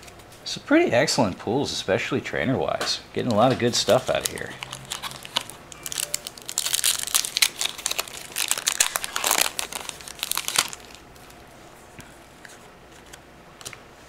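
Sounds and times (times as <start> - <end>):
foil wrapper tearing and crinkling: 3.8 - 11.4.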